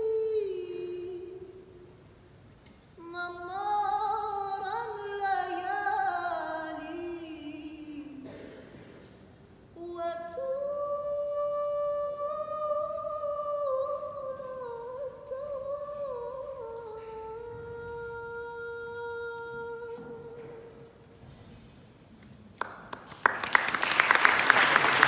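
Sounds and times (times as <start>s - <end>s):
woman singing unaccompanied: 0.0s - 1.9s, 3.0s - 8.3s, 9.7s - 21.0s.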